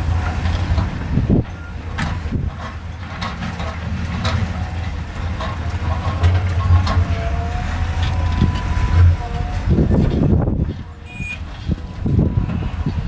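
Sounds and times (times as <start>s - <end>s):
excavator diesel engine: 0.0s - 13.0s
knocks and clatter: 0.0s - 13.0s
thin whine: 6.2s - 10.1s.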